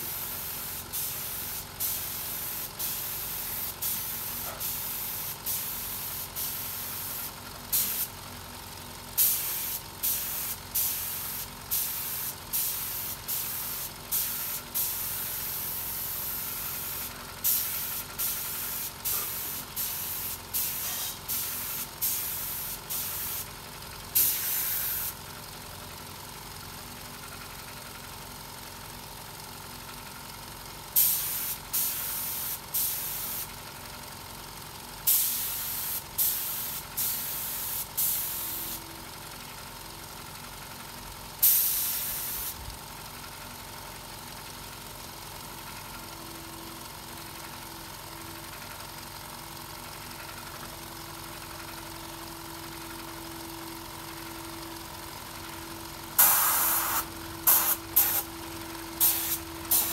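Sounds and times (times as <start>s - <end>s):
air gun hissing bursts: 0.0s - 8.1s, 9.2s - 23.5s, 24.2s - 25.2s, 31.0s - 33.5s, 35.1s - 38.8s, 41.4s - 42.6s, 56.2s - 58.3s, 59.0s - 59.9s.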